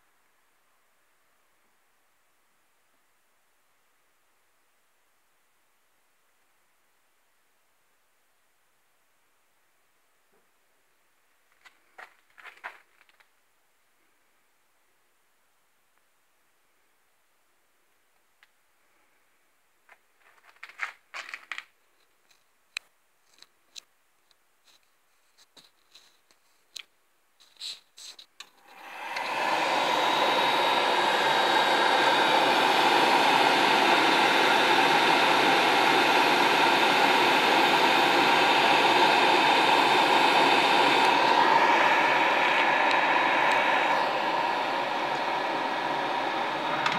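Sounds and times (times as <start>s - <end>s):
boiler burner roaring: 28.7s - 46.9s.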